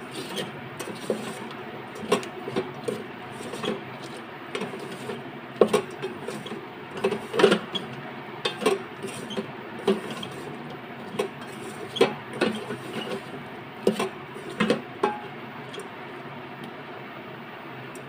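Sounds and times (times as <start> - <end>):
wooden spatula scraping metal pot: 0.0 - 15.8.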